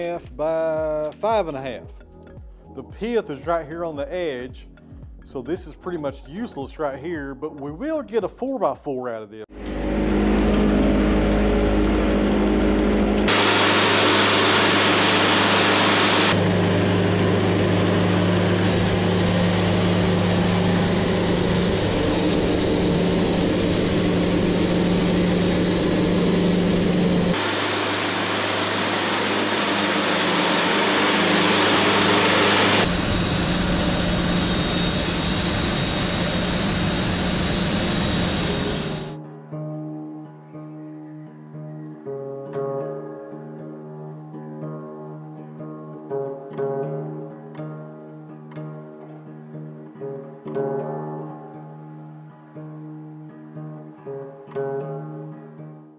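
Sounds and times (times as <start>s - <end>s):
band sawmill sawing wood: 9.6s - 39.2s.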